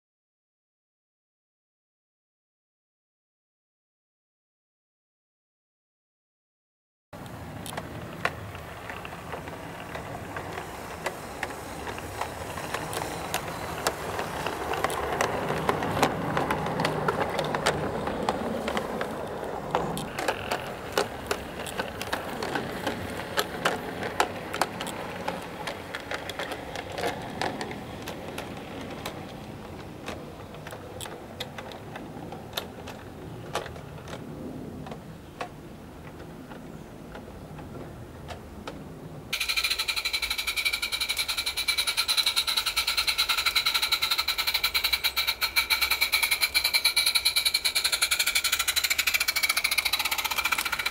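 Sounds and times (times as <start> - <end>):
wheels clicking on rails: 7.2 - 50.9
model steam train rattling on track: 7.9 - 34.1, 39.4 - 50.9.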